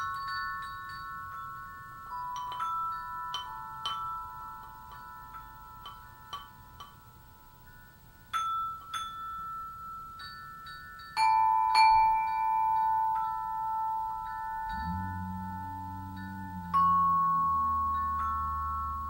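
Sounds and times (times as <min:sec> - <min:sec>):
bell-like melody: 0:00.0 - 0:19.0
low held bass notes: 0:14.6 - 0:19.0.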